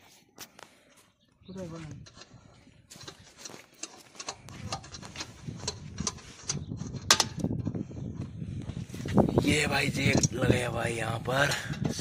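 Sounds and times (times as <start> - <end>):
metallic clicks of wheel nuts: 2.0 - 7.8.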